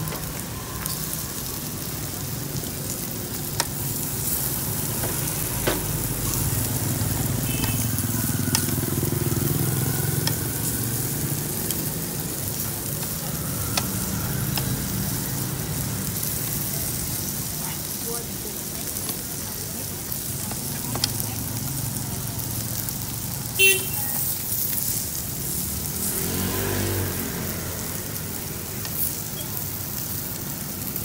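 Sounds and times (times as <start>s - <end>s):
meat sizzling on grill: 0.0s - 31.0s
tongs clicking on grill: 8.5s - 8.9s, 28.8s - 29.1s.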